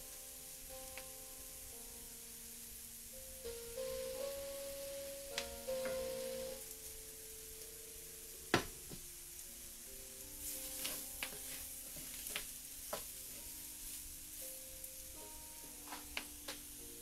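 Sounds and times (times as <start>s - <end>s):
background music with held notes: 0.0s - 17.0s
vegetables sizzling in a pan: 0.0s - 17.0s
wooden spoon knocking on pan: 8.5s - 9.0s.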